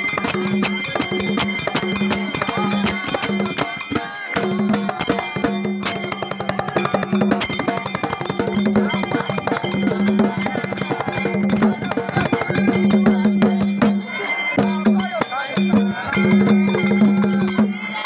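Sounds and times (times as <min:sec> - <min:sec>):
dhol drum playing fast rhythm: 0:00.0 - 0:18.0.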